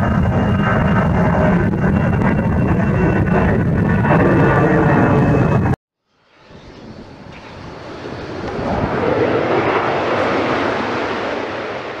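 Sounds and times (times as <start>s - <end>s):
passing jet aircraft: 0.0s - 12.0s.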